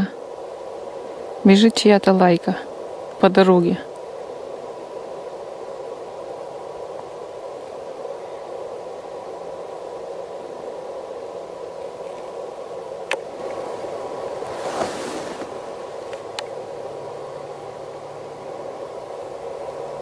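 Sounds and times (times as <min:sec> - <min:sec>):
faint constant tone: 0:00.0 - 0:20.0
steady hiss: 0:00.0 - 0:20.0
camera handling noise: 0:15.4 - 0:16.5.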